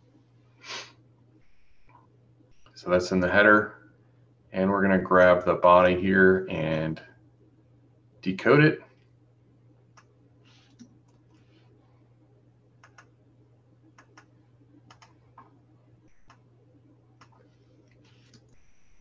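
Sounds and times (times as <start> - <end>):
low electrical hum: 0.0 - 19.0
computer mouse and keyboard clicks: 10.5 - 11.3, 14.9 - 15.5, 17.2 - 18.7.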